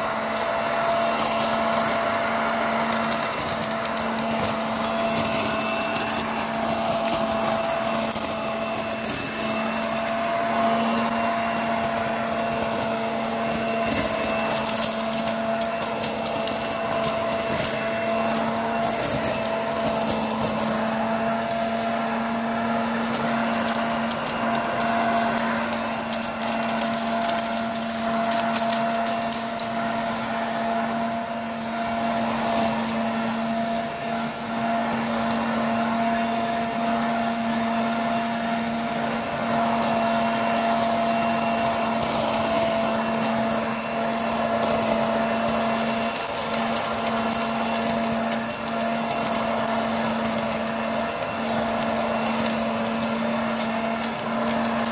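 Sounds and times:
leaves crackling and clicking: 0.0s - 33.8s, 34.6s - 54.9s
leaf blower vacuum running: 0.0s - 54.9s.

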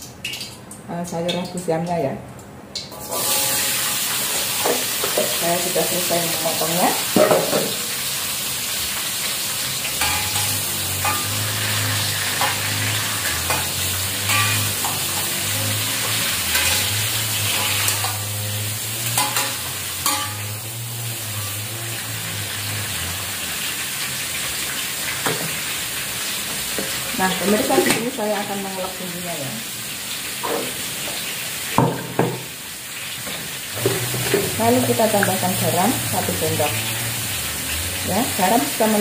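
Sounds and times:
vegetables sizzling in oil: 2.9s - 39.0s
metal spatula scraping a wok: 3.0s - 4.8s, 9.9s - 23.1s.

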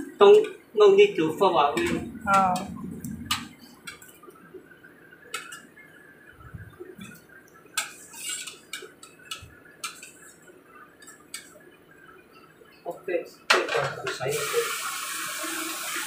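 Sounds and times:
metal spoon scraping saucepan: 7.8s - 10.3s.

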